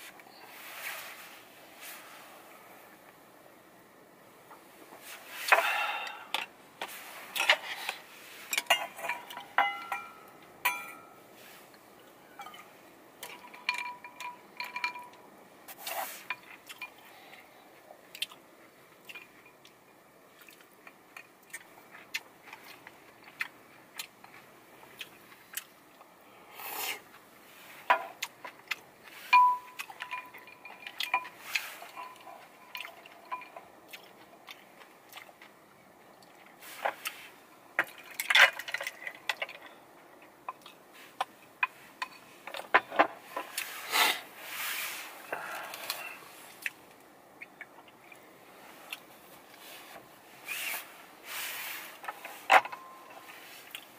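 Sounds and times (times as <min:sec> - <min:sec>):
utensils clinking on bowls: 0:08.5 - 0:11.2, 0:12.4 - 0:15.2, 0:29.3 - 0:33.7.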